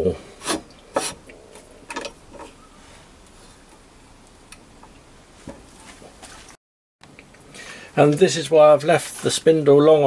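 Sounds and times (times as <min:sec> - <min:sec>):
metal clicks and knocks: 0:01.9 - 0:02.5.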